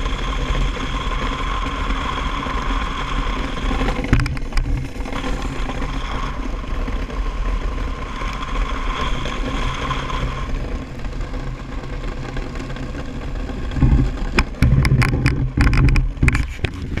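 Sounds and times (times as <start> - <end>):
iceboat runners rumbling over ice: 0.0 - 17.0
sharp knocks: 13.8 - 17.0.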